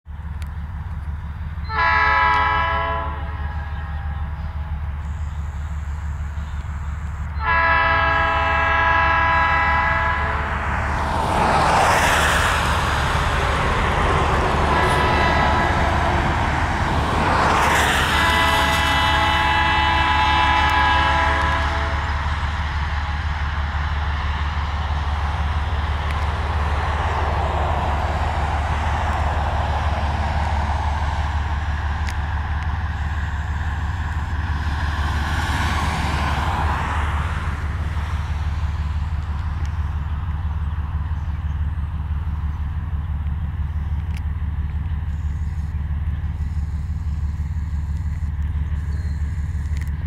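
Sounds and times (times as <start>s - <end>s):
diesel locomotive engine rumble: 0.0s - 50.0s
road traffic hiss: 0.1s - 50.0s
train horn: 1.6s - 4.8s, 7.4s - 10.6s, 14.6s - 16.5s, 17.3s - 22.3s.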